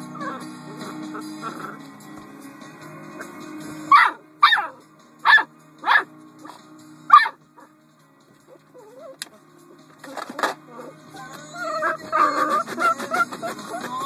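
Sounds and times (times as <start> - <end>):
puppy barking: 3.9 - 6.1, 7.1 - 7.4, 11.6 - 13.9.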